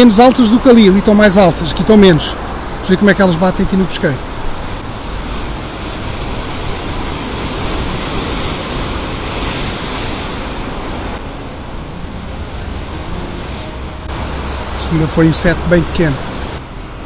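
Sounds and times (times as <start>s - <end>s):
surf breaking on rocks: 3.8s - 17.0s.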